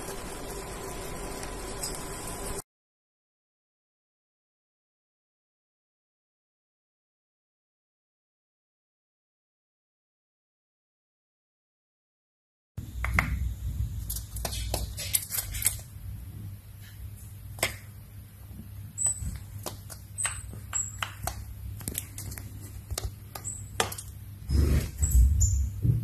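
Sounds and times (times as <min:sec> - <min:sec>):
bird beak tapping: 0:19.0 - 0:24.1.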